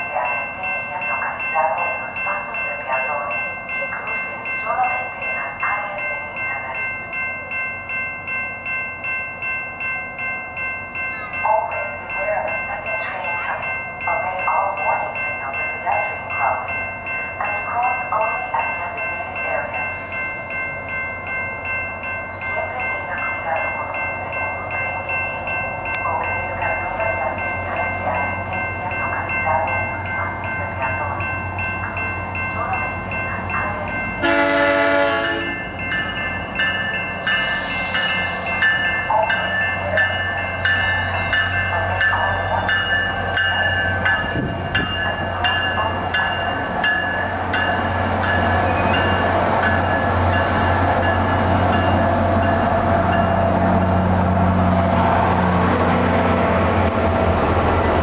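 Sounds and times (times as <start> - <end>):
crossing warning bells ringing: 0.0 - 58.0
train rumble: 0.0 - 58.0
train horn blast: 34.2 - 35.6
high hiss: 37.2 - 38.6.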